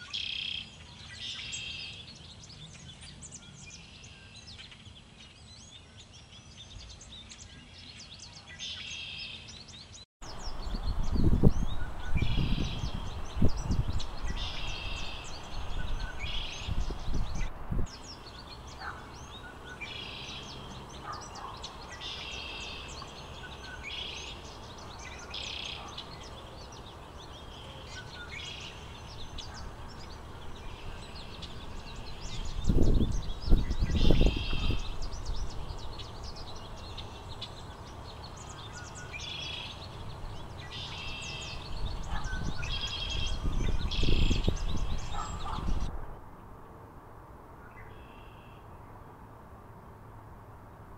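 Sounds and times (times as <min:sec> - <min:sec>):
songbirds singing: 0:00.0 - 0:50.9
wind buffeting microphone: 0:10.2 - 0:22.0, 0:28.0 - 0:38.8, 0:39.8 - 0:46.3.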